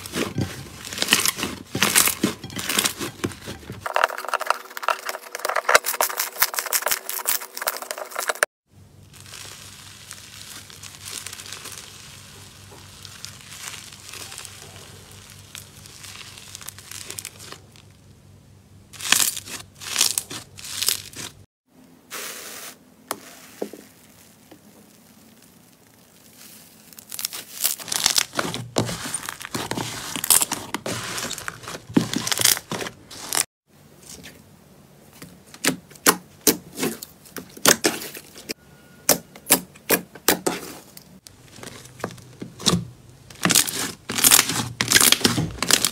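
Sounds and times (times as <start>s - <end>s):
slime crackling and squishing: 0.0s - 18.1s, 18.9s - 21.5s, 23.1s - 33.5s, 40.4s - 45.9s.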